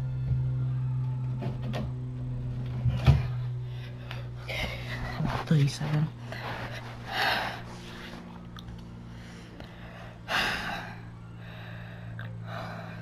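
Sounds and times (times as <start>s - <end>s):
steady low hum: 0.0s - 13.0s
person breathing hard: 6.2s - 8.3s, 9.0s - 13.0s.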